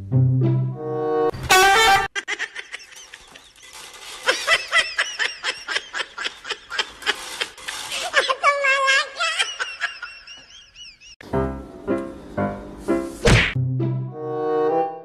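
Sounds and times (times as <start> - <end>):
person laughing: 2.1 - 11.2.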